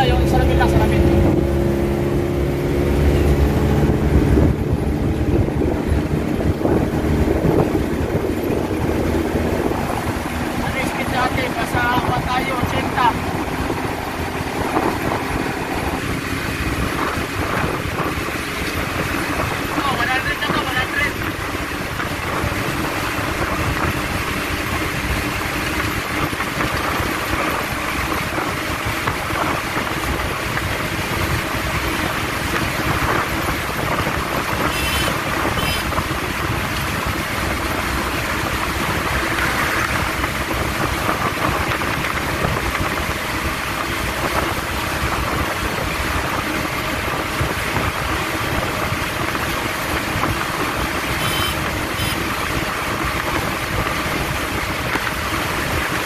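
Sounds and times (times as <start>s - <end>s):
van engine drone: 0.0s - 56.0s
wind noise: 0.0s - 56.0s.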